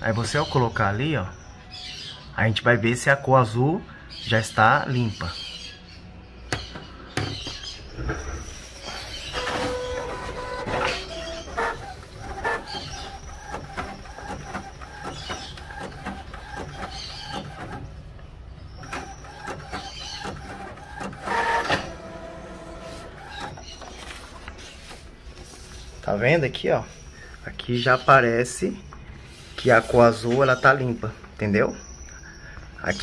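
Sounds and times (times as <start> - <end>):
printer carriage motor whining: 8.7 - 25.1
paper feeding clatter: 8.9 - 18.0, 18.8 - 25.6
printer clicks and clacks: 9.3 - 18.0, 18.7 - 24.3.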